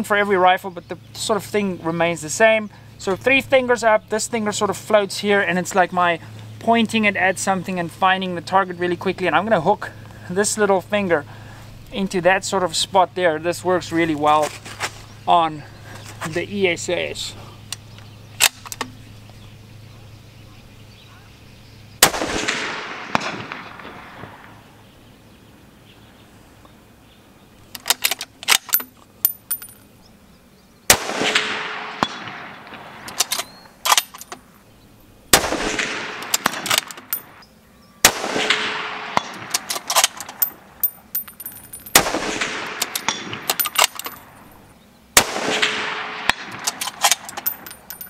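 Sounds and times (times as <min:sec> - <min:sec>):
rifle shots echoing: 0:22.0 - 0:24.8, 0:30.9 - 0:34.2, 0:35.3 - 0:37.4, 0:38.0 - 0:44.6, 0:45.2 - 0:48.0
rifle bolt clicking: 0:33.1 - 0:34.4, 0:36.2 - 0:37.3, 0:39.2 - 0:44.2, 0:46.3 - 0:48.0.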